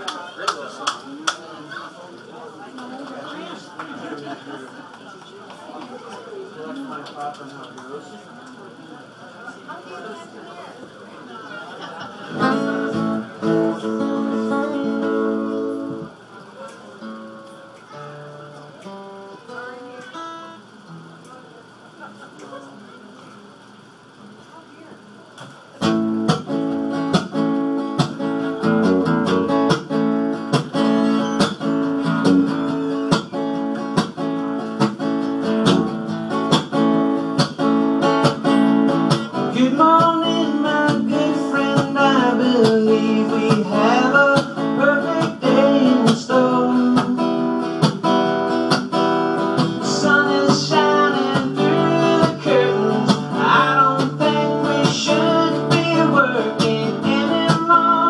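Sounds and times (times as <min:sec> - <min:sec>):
acoustic guitar strumming: 0:12.1 - 0:21.2, 0:25.8 - 0:58.0
person singing: 0:39.5 - 0:47.6, 0:49.8 - 0:58.0.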